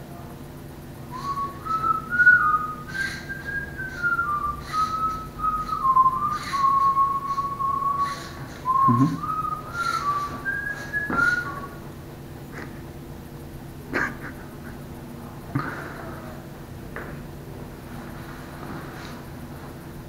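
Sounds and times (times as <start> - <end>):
robotic chair whistling tune: 1.1 - 11.8.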